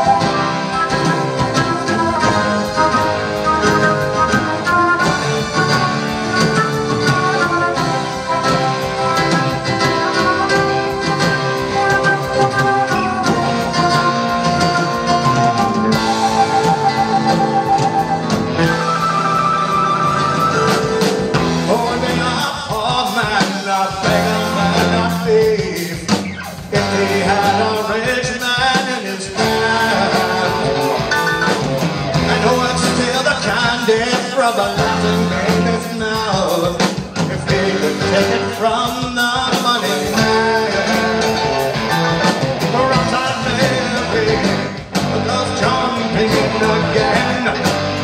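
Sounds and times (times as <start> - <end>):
flute melody: 0.0 - 23.0
rock band playing: 0.0 - 48.0.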